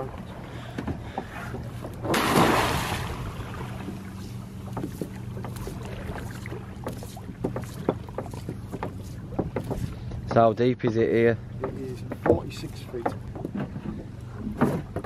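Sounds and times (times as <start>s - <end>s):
outboard motor idling: 0.0s - 15.0s
water splash: 2.0s - 4.3s
rope knocking on boat side: 6.8s - 9.9s, 10.8s - 15.0s.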